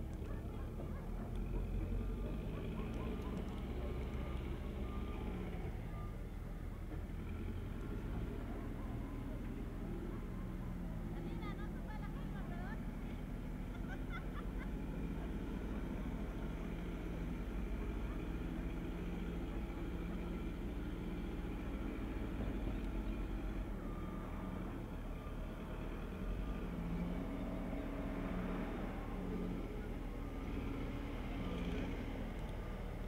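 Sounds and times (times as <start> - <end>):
distant heavy machinery engine hum: 0.0 - 33.0.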